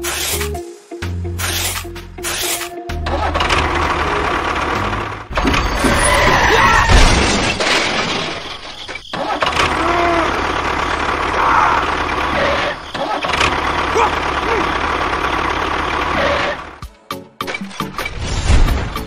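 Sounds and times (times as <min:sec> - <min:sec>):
tractor engine rumbling: 0:03.0 - 0:16.8.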